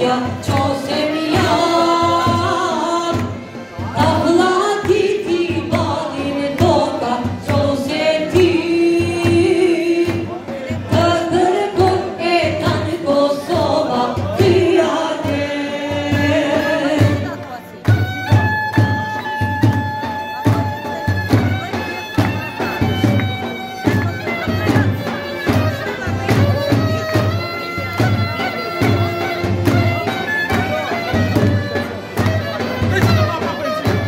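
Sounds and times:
group singing folk song: 0.0s - 17.6s.

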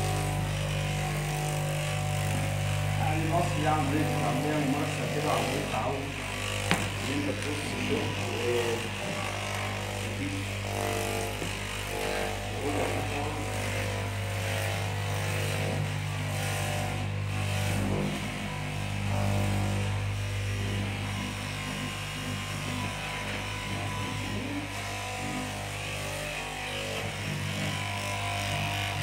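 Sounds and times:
fabric cutting machine humming: 0.0s - 29.0s.

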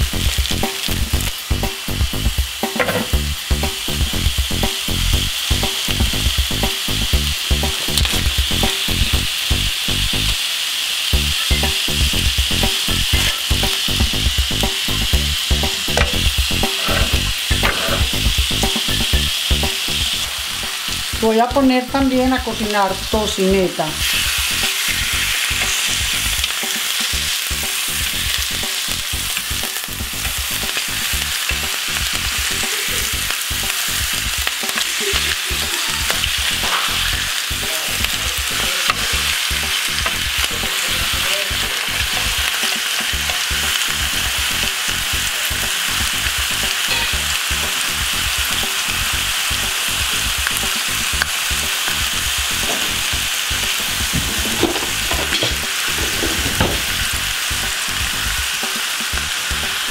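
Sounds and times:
meat sizzling in a grill pan: 0.0s - 59.9s
fat popping and crackling: 7.6s - 9.4s, 11.2s - 22.7s, 53.8s - 57.2s.

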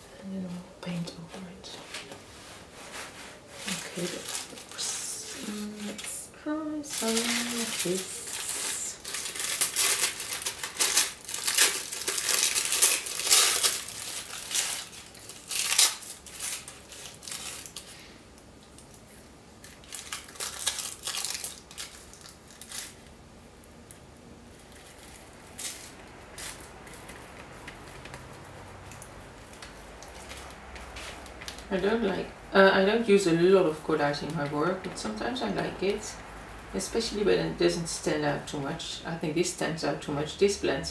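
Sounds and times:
paper rustling and crinkling: 1.2s - 18.1s, 18.7s - 23.2s, 23.8s - 32.3s.

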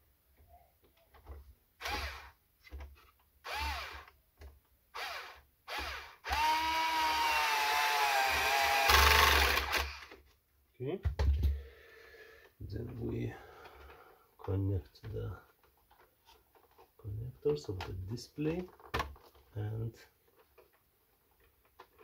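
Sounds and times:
electric screwdriver motor whining: 1.8s - 2.3s, 3.5s - 4.1s, 5.0s - 10.2s.

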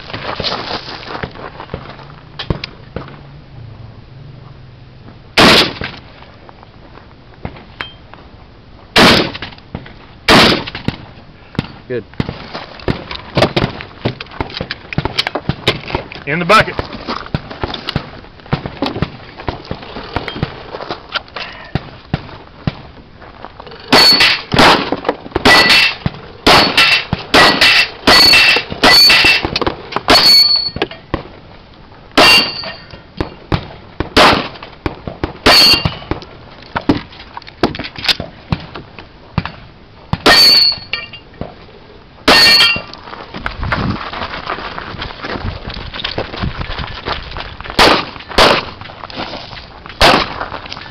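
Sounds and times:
pistol shots: 5.4s - 5.9s, 9.0s - 9.4s, 10.3s - 11.0s, 23.9s - 30.5s, 33.2s - 34.6s, 47.8s - 48.8s, 50.0s - 50.4s
metallic ring of steel targets: 23.7s - 24.6s, 25.4s - 31.0s, 32.2s - 33.4s, 35.4s - 36.1s, 40.2s - 41.3s, 42.3s - 42.9s.

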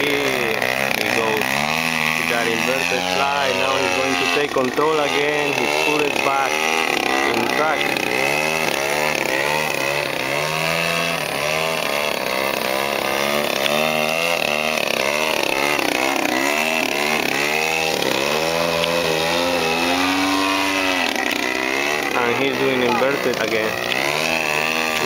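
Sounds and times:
model plane engine buzzing: 0.0s - 25.0s.

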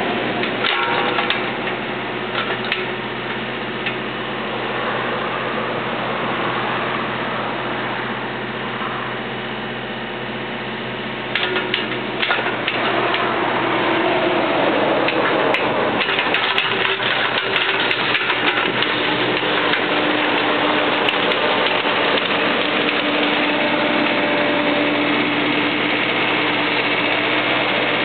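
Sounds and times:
excavator diesel engine running: 0.0s - 28.0s
sharp metal clanks: 0.4s - 3.0s.

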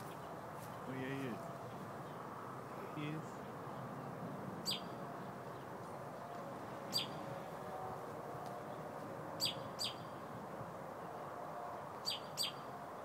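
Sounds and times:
low background noise: 0.0s - 13.0s
robin calls: 4.6s - 5.7s, 6.9s - 7.4s, 9.4s - 10.2s, 12.0s - 12.8s.

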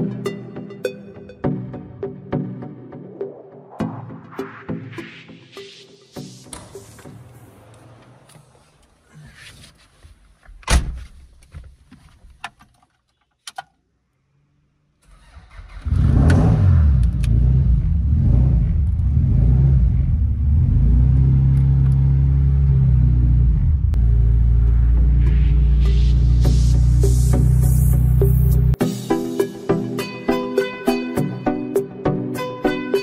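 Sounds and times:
car engine revving: 15.2s - 28.8s.

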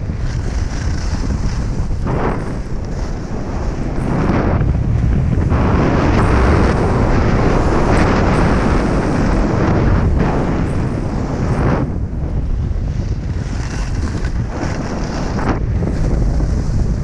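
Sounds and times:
skis sliding over snow: 0.0s - 17.0s
wind buffeting microphone: 0.0s - 17.0s.

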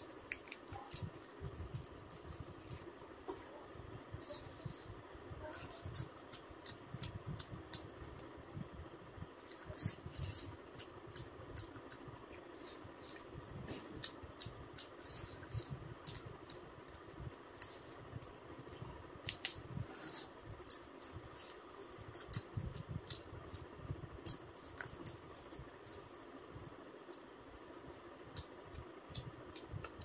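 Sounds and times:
person chewing food: 0.0s - 3.5s, 5.6s - 8.4s, 9.0s - 30.0s.

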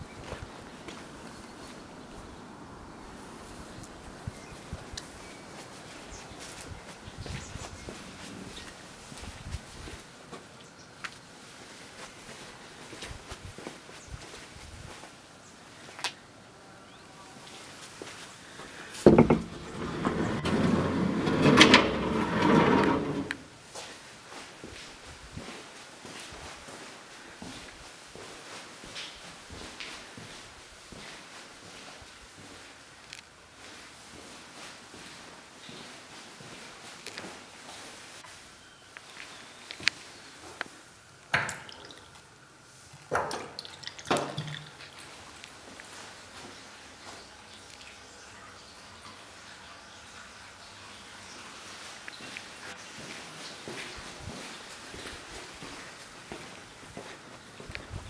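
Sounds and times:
wooden door scraping and rattling: 19.0s - 23.5s
tap water splashing into sink: 43.2s - 44.9s.

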